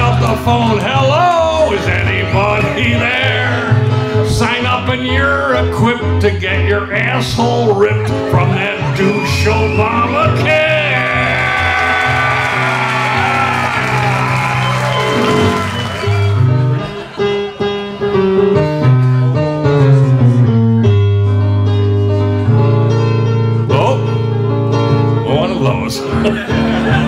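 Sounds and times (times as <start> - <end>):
audience noise: 0.0 - 5.6, 6.4 - 27.0
electronic keyboard music: 7.9 - 27.0.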